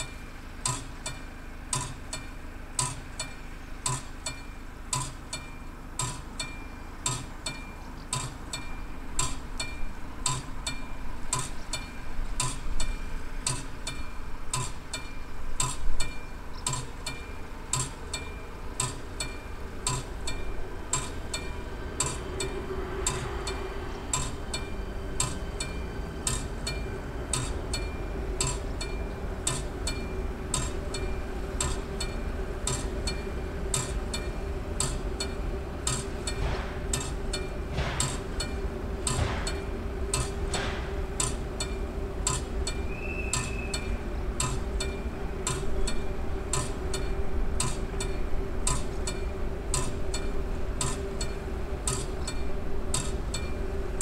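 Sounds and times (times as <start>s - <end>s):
mechanical crossing bell striking: 0.0s - 53.7s
low steady hum: 0.0s - 54.0s
loud knock: 39.2s - 39.6s, 40.5s - 41.0s.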